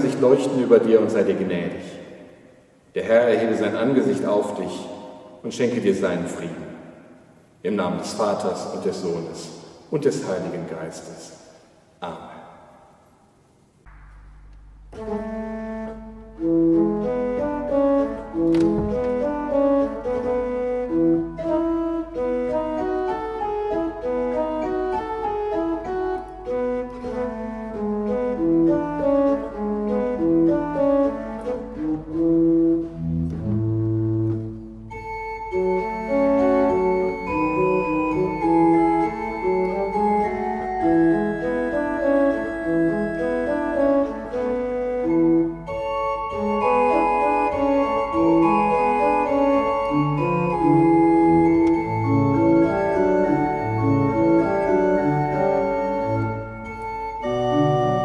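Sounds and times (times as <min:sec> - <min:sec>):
pipe organ playing: 0:14.4 - 0:58.0.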